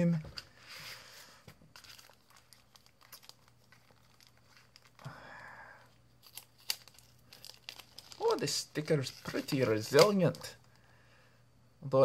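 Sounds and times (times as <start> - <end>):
plastic bag crinkling: 1.7 - 5.2, 6.2 - 10.8.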